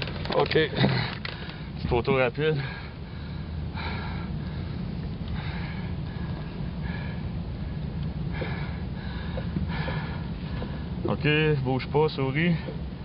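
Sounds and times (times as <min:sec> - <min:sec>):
low rumble: 0:00.0 - 0:13.0
person breathing hard: 0:02.6 - 0:11.0.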